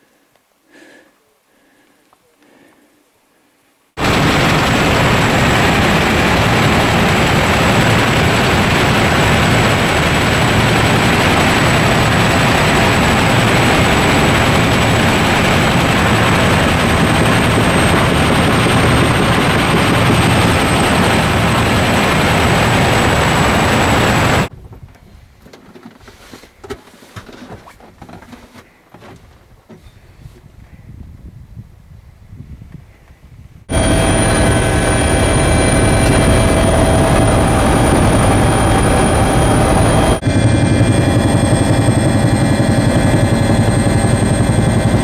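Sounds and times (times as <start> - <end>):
helicopter rotor and engine noise: 4.0 - 24.5, 33.7 - 45.0
thin high whine: 33.7 - 44.7.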